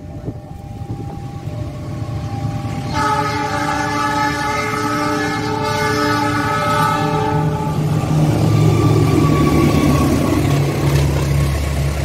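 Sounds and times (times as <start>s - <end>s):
diesel locomotive rumble: 0.0s - 12.0s
train air horn chord: 2.8s - 7.9s.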